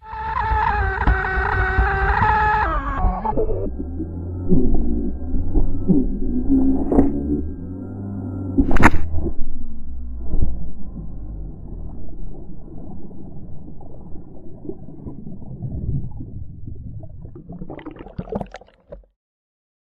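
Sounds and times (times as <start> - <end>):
muffled underwater gurgling: 1.8 - 19.1
water splashes: 10.8 - 19.1.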